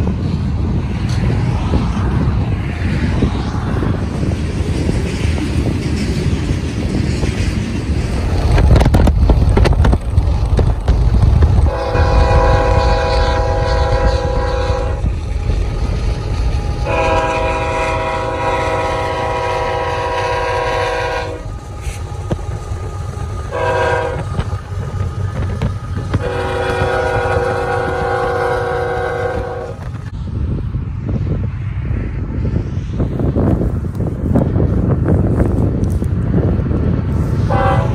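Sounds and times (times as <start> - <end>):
freight train rumbling past: 0.0 - 37.9
locomotive air horn blasts: 11.6 - 15.1, 16.8 - 22.0, 23.5 - 24.5, 26.1 - 29.9, 37.5 - 37.9.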